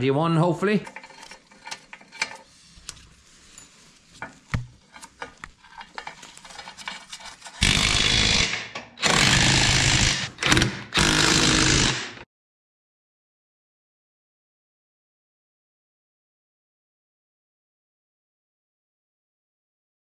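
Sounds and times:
tools clicking and tapping: 0.8s - 2.5s
impact wrench hammering: 7.6s - 12.2s.

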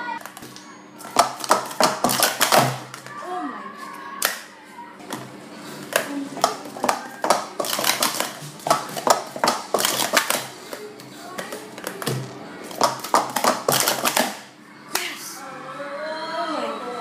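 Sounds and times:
plastic cups clacking: 0.2s - 3.1s, 5.1s - 14.5s.

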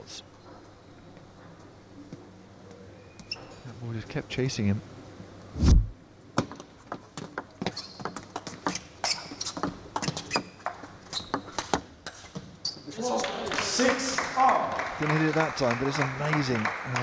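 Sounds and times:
short low thud: 5.6s - 6.0s
shoes squeaking on floor: 7.2s - 13.0s.

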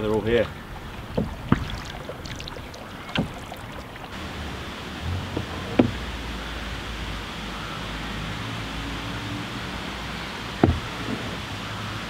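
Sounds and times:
paddle strokes in water: 0.0s - 6.6s
paddle knocking on hull: 0.1s - 4.2s, 5.0s - 6.0s, 10.6s - 11.4s.

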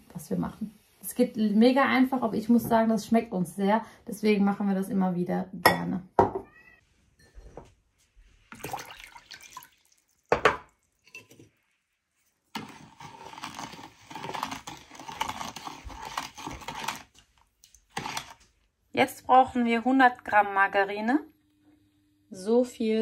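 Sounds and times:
metal spoon stirring in plastic bowl: 12.2s - 18.7s.

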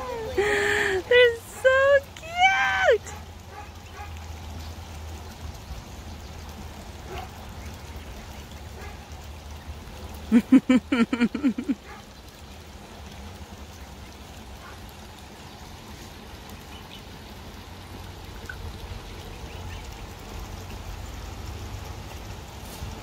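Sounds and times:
creek trickling and splashing: 0.0s - 23.0s
goslings and ducklings peeping: 18.3s - 20.8s.

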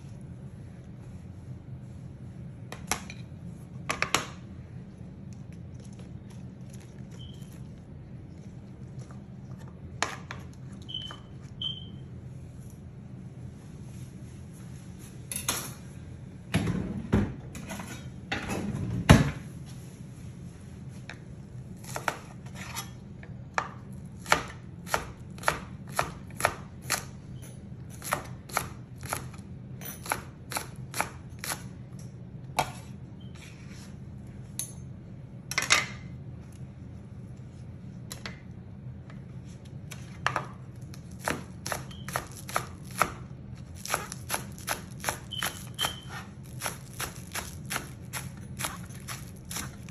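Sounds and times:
knife chopping on cutting board: 40.2s - 43.2s, 43.8s - 49.9s.

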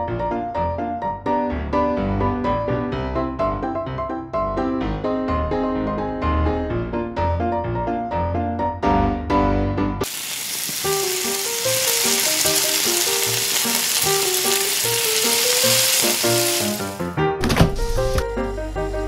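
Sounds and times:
soft piano-like music: 0.0s - 19.0s
hot oil sizzling: 10.0s - 17.1s, 18.0s - 19.0s.

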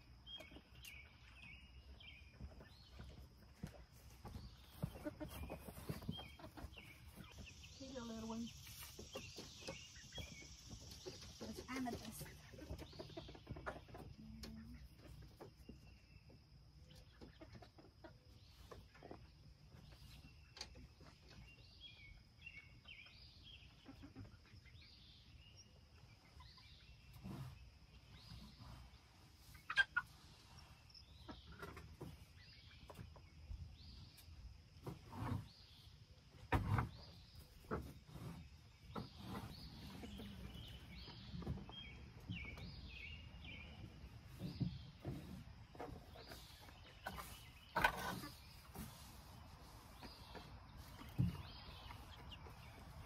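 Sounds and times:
chickens clucking: 0.0s - 53.0s.

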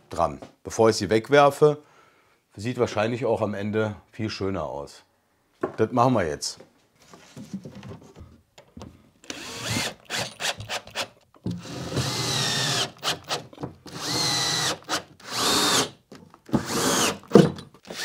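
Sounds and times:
cordless drill motor spinning: 9.2s - 11.0s, 11.6s - 15.9s, 16.6s - 18.0s.

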